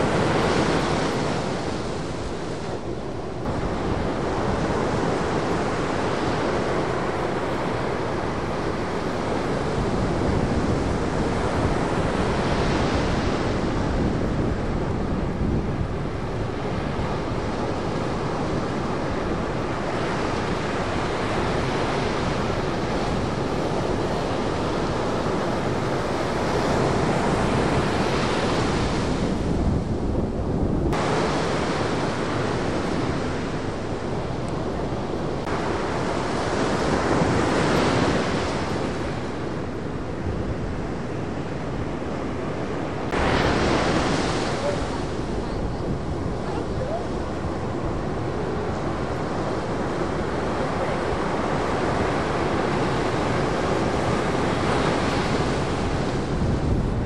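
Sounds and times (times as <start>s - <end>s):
wind buffeting microphone: 0.0s - 57.0s
surf breaking on beach: 30.9s - 57.0s.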